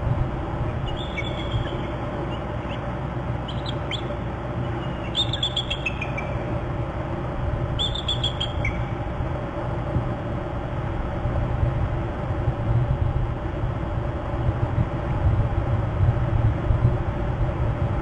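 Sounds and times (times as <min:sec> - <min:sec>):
steady low rumble: 0:00.0 - 0:18.0
eagle alert calls: 0:00.8 - 0:06.5, 0:07.8 - 0:08.9.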